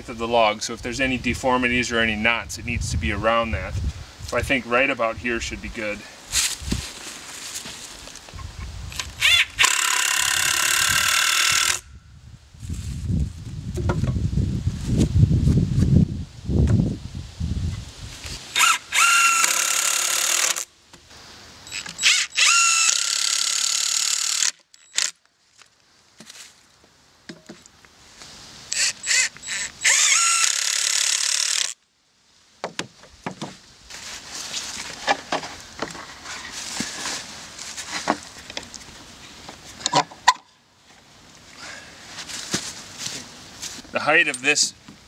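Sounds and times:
cordless drill driving screws: 0:09.2 - 0:11.8, 0:18.6 - 0:20.7, 0:21.7 - 0:25.1, 0:28.8 - 0:31.8.

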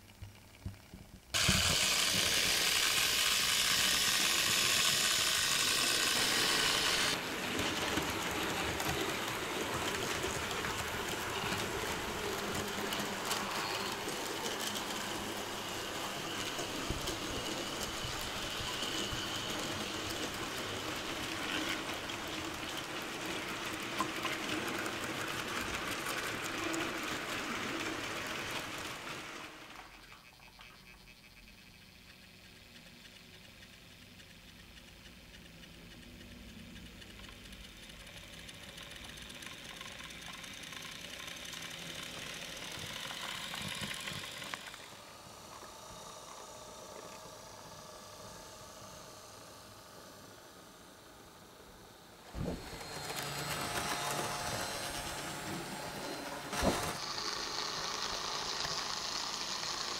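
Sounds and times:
model train running on track: 0:01.4 - 0:59.9
faint clicks: 0:31.9 - 0:41.4.

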